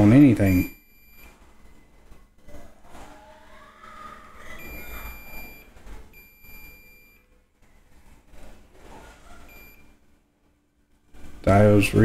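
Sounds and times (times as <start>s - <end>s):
multimeter high beeps: 0.0s - 2.0s, 4.6s - 7.3s, 9.5s - 10.0s.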